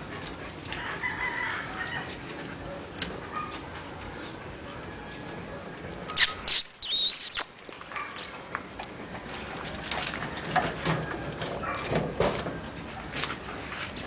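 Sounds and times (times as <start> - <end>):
high-pitched animal cry: 6.2 - 7.4.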